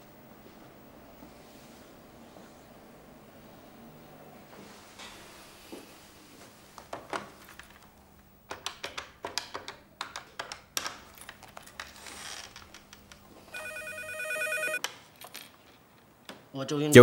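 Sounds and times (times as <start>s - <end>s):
telephone ringing: 13.5s - 14.8s.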